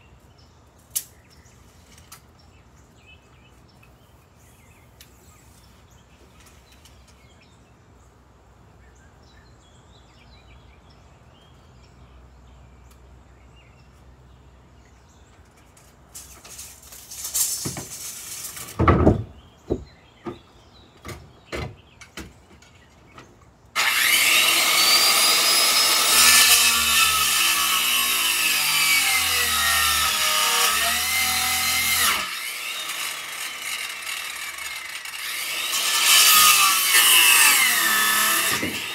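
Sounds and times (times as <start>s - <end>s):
boards knocking and thumping: 17.6s - 22.7s
circular saw cutting wood: 23.8s - 38.9s.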